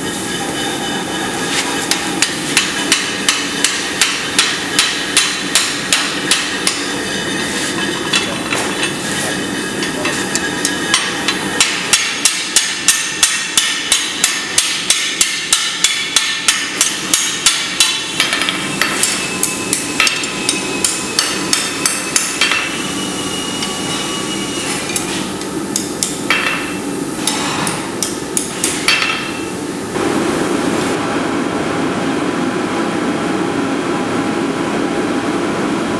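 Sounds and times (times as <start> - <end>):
hammer striking iron on anvil: 1.9 - 7.0, 7.8 - 9.0, 9.8 - 22.8, 25.7 - 29.5.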